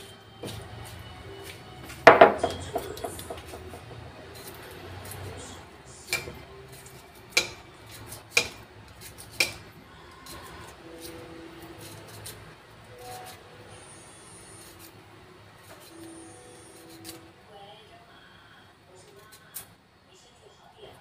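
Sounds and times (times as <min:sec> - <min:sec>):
knife slicing cucumber: 0:06.1 - 0:09.6, 0:10.2 - 0:12.4.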